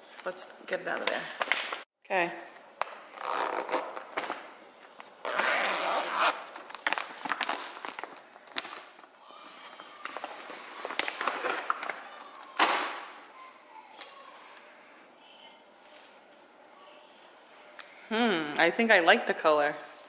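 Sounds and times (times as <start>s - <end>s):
plastic bag crinkling: 6.4s - 9.1s.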